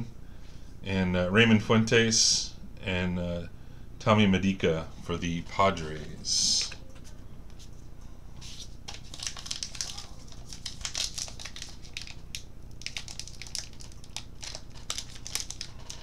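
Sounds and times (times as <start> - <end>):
wrapper being torn and crinkled: 8.9 - 16.0.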